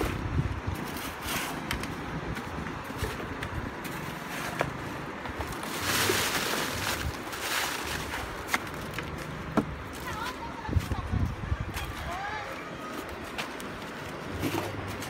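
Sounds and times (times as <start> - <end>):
wind: 0.0 - 15.0
woven sack rustling: 5.4 - 9.2.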